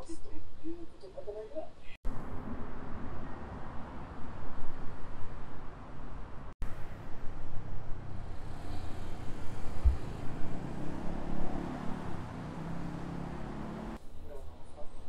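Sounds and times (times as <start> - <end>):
low traffic rumble: 2.1 - 15.0
brief low thump: 9.8 - 10.2.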